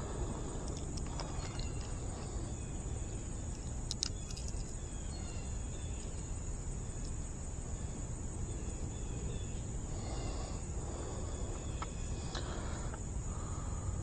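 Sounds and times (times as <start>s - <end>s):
continuous low rumble: 0.0s - 14.0s
high insect drone: 0.0s - 14.0s
sharp clicks: 3.5s - 4.7s.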